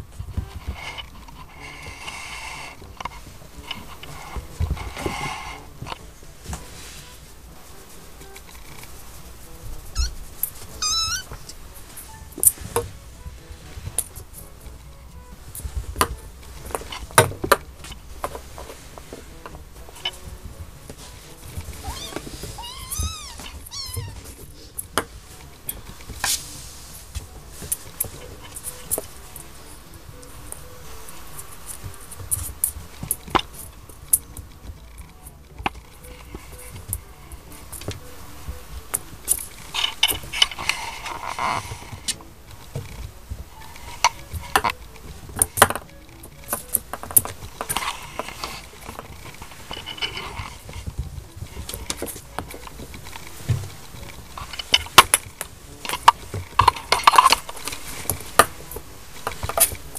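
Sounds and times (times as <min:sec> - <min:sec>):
plastic ball clicking and clinking: 0:00.1 - 0:59.9
kitten mewing: 0:09.9 - 0:11.5, 0:21.8 - 0:24.4.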